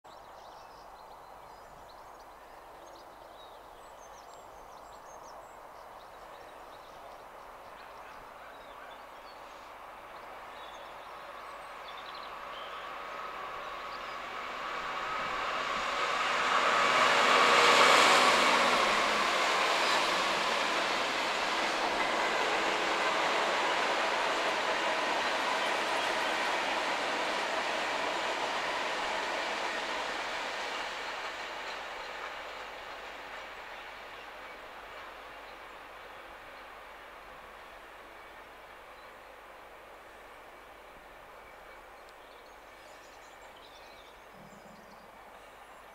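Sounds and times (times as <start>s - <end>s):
diesel locomotive engines: 6.5s - 43.6s
train wheels: 11.7s - 38.9s.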